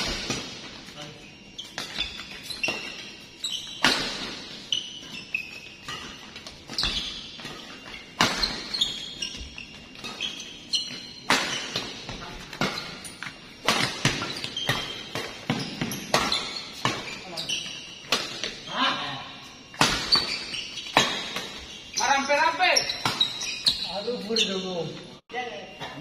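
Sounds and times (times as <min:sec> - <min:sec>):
shoes squeaking on court floor: 0:00.0 - 0:26.0
racket striking shuttlecock: 0:08.1 - 0:08.8, 0:11.2 - 0:17.1.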